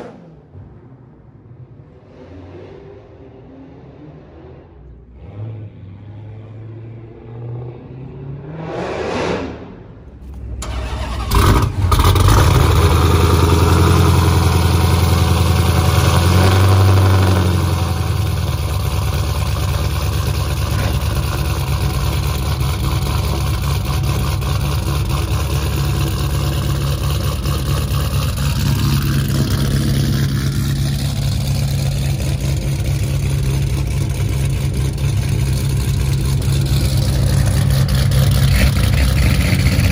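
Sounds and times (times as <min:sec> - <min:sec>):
car passing: 0:00.0 - 0:15.0
car engine starting and idling: 0:09.9 - 0:39.9.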